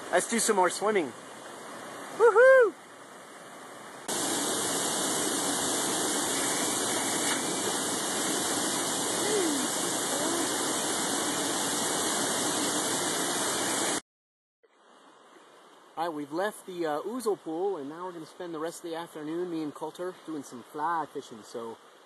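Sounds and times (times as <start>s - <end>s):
waterfall rushing into pool: 0.0s - 3.2s, 3.9s - 14.0s.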